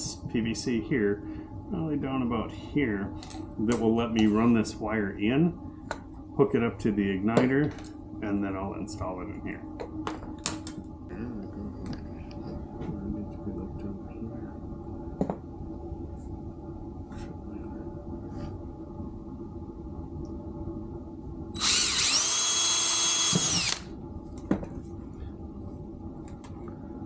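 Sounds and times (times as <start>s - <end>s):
drill motor whining: 21.6s - 23.9s.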